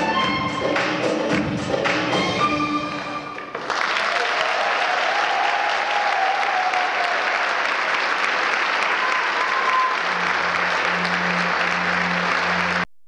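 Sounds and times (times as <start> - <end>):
audience applauding: 3.4 - 12.9.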